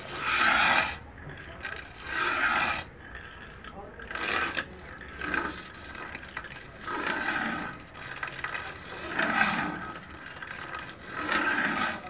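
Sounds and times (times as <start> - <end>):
blade scraping during sharpening: 0.0 - 6.2, 10.8 - 12.0.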